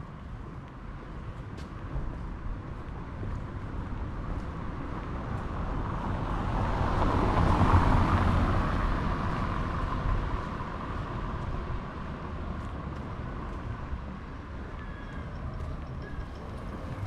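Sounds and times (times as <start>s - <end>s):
vehicle driving past: 14.8s - 17.0s.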